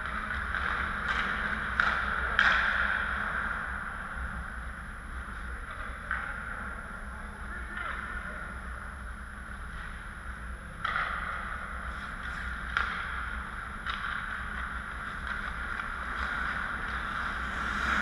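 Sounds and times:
skate blades scraping on ice: 13.9s - 18.0s
low rumble: 14.9s - 18.0s.

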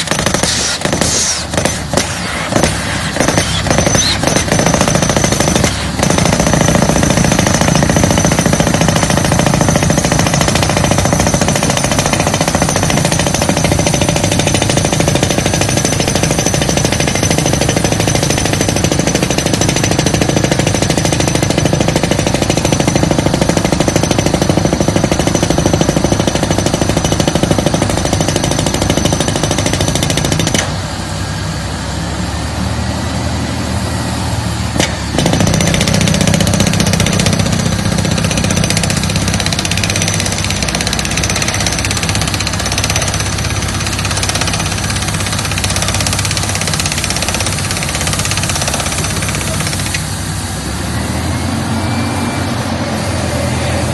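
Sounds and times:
percussive drill hammer pounding: 0.0s - 30.8s, 34.8s - 50.1s
engine drone: 28.5s - 53.9s.

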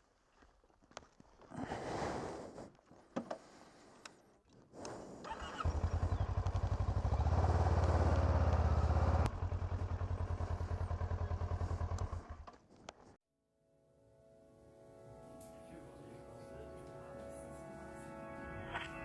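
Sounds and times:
motorcycle engine pulsing: 5.3s - 12.6s.

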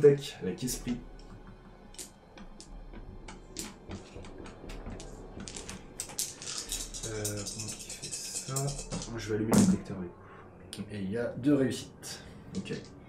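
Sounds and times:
faint background music: 0.0s - 13.0s
dice rolling and clattering: 3.3s - 9.8s.

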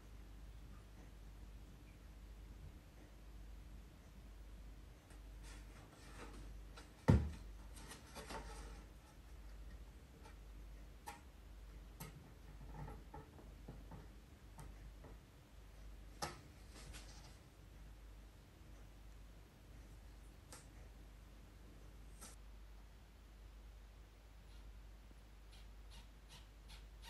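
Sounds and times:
plywood sheet knocking on wood: 7.1s - 7.4s.

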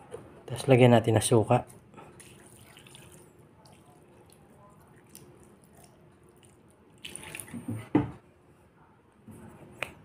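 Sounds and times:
liquid trickling into a wok: 2.2s - 7.7s.

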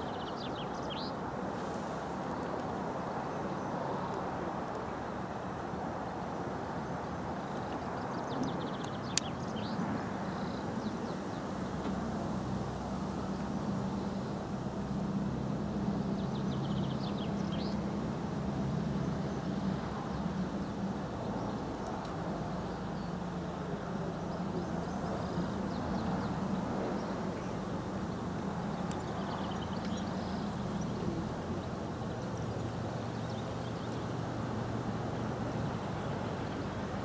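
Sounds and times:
birds chirping: 16.1s - 17.8s, 24.0s - 34.2s.

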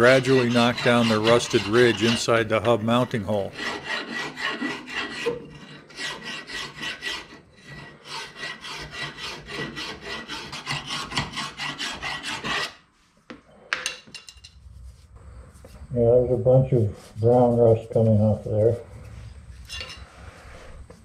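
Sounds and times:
file rasping on metal: 0.0s - 12.8s.

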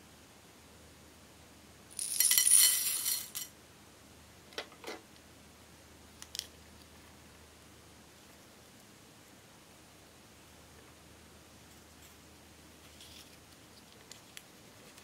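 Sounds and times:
beads clinking into glass bowl: 2.0s - 3.5s.

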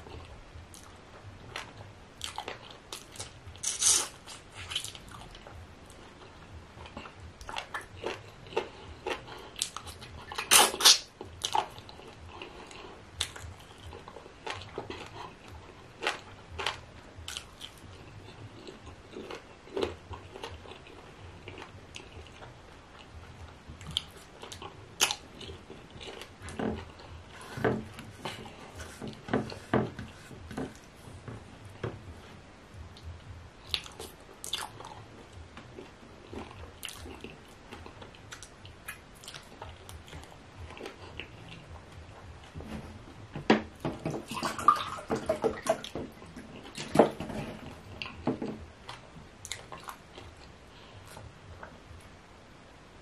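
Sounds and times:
chewing: 0.0s - 29.3s, 33.0s - 42.5s, 48.8s - 51.3s
lip smacks: 9.1s - 11.7s.

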